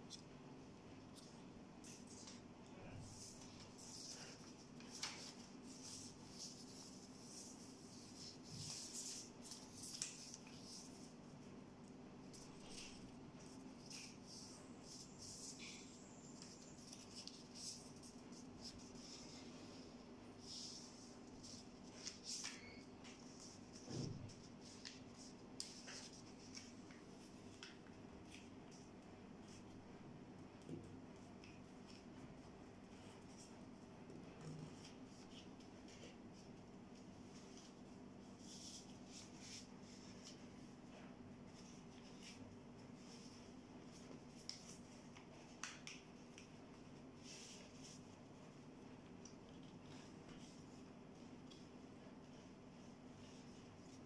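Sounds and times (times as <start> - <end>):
paper rustling being folded: 1.1 - 29.8, 31.1 - 54.0
paper rustling and crackling: 1.9 - 11.2, 20.4 - 28.8.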